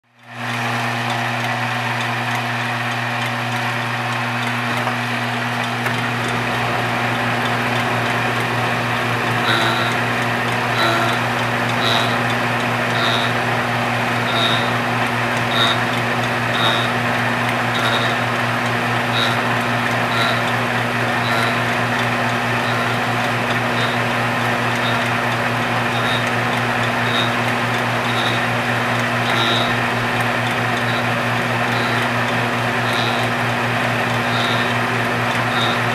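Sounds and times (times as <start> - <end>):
lathe cutter whirring: 0.3 - 35.9
light ticking: 14.2 - 31.1.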